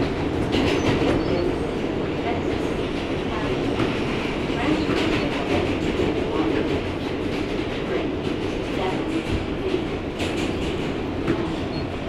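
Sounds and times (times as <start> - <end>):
train rumbling on track: 0.0 - 12.0.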